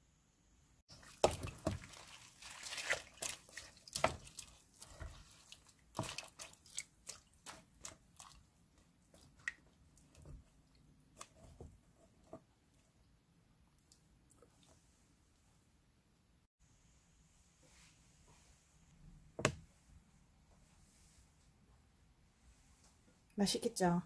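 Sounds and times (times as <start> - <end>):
vegetables squishing in brine: 0.9 - 12.2.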